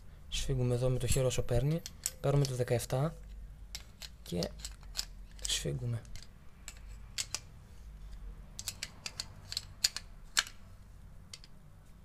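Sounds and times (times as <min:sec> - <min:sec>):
spanner clicking on metal: 0:01.0 - 0:02.7, 0:03.7 - 0:07.5, 0:08.5 - 0:10.6.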